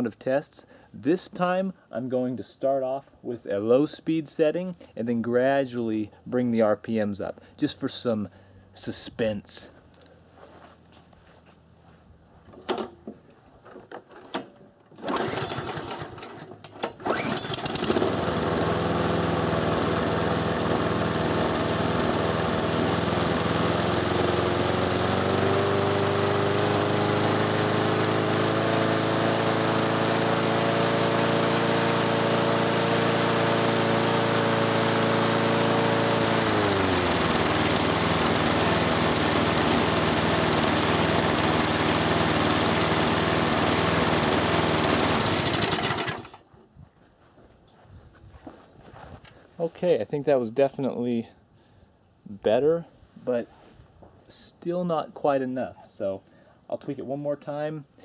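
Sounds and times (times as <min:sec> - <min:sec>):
mower engine running: 0:14.9 - 0:46.4.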